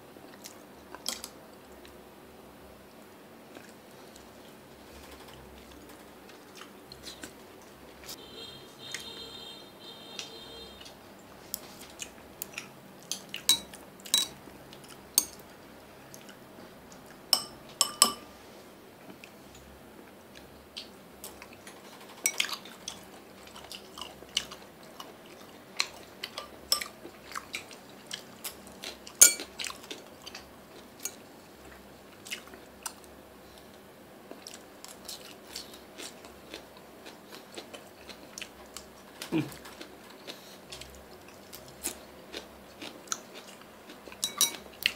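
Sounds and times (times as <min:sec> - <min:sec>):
chewing: 0:00.2 - 0:02.0, 0:02.9 - 0:08.2, 0:10.2 - 0:17.2, 0:20.0 - 0:44.9
chopsticks clicking on ceramic: 0:13.1 - 0:14.3, 0:15.2 - 0:15.4, 0:17.4 - 0:18.2.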